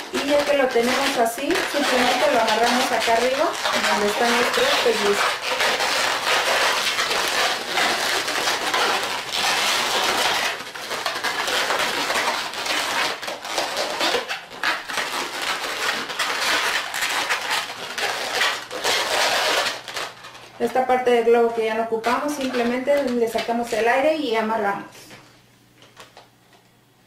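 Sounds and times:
balloons rubbing and squeaking: 0.0s - 24.0s.

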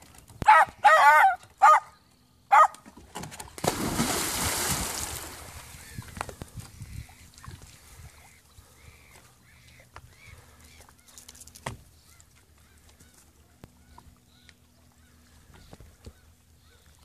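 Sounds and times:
dog barking: 0.5s - 1.9s, 2.5s - 2.8s
dog splashing into lake: 3.1s - 5.8s
water sloshing: 3.2s - 8.0s.

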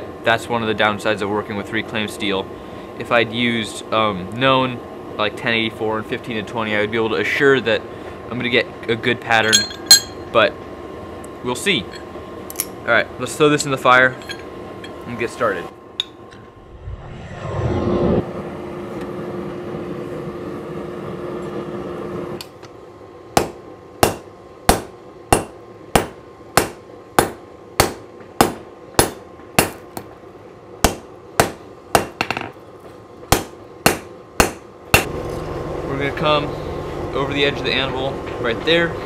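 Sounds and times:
hammer striking hot metal on anvil: 9.4s - 10.3s, 23.4s - 30.1s, 30.8s - 32.6s, 33.3s - 35.1s
low hum: 9.4s - 13.3s, 14.0s - 26.4s
steady rushing noise: 16.5s - 18.4s.

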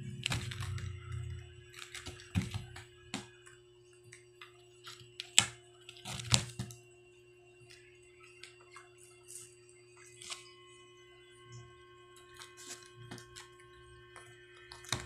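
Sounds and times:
low hum: 0.0s - 6.0s.

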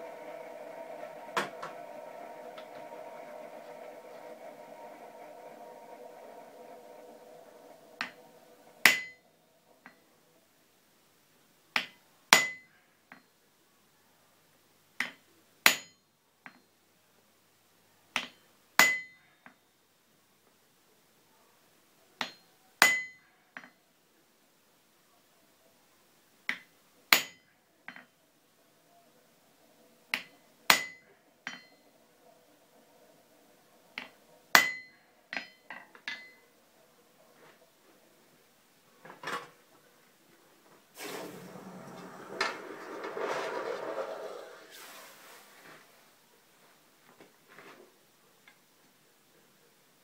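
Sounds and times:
hammer striking chisel on steel: 8.0s - 9.2s, 11.8s - 12.7s, 15.0s - 16.6s, 18.2s - 19.2s, 22.2s - 23.7s, 26.5s - 28.1s, 30.1s - 31.9s, 34.0s - 36.4s
tools clinking on anvil: 34.6s - 36.4s.

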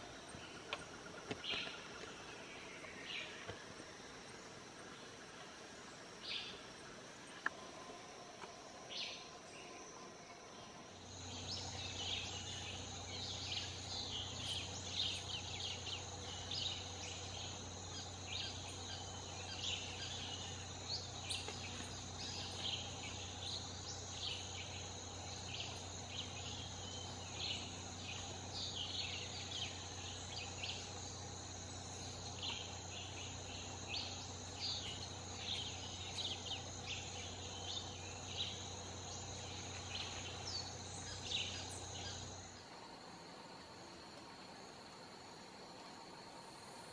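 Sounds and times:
low steady hum: 0.0s - 46.9s
high-pitched insect drone: 7.6s - 42.6s.

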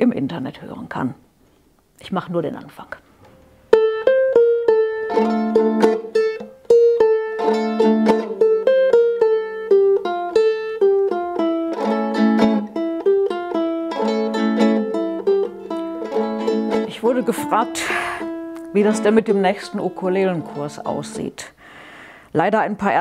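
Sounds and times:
solo ukulele playing: 3.6s - 21.4s.

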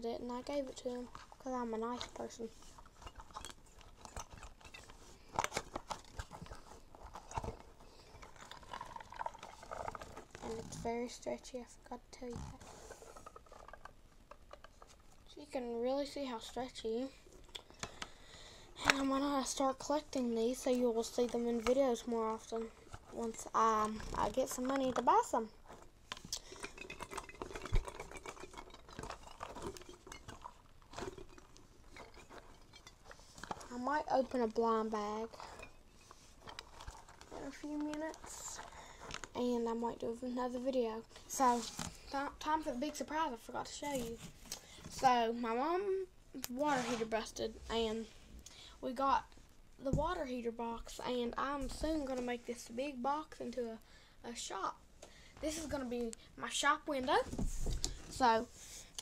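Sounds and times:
rubber ball squeezing noises: 0.2s - 15.4s, 20.6s - 39.8s.

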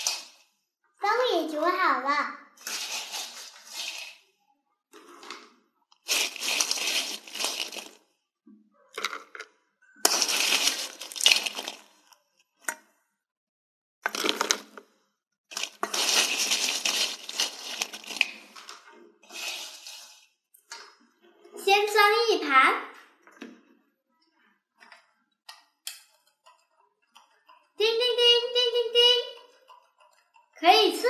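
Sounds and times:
fries rustling in frying pan: 2.6s - 4.2s, 6.1s - 8.0s, 10.1s - 12.0s, 15.5s - 18.6s, 19.2s - 20.2s.

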